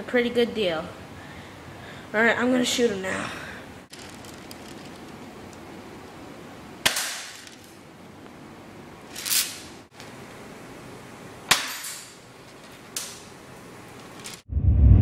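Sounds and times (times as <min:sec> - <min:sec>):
soft rising noise: 0:14.5 - 0:15.0.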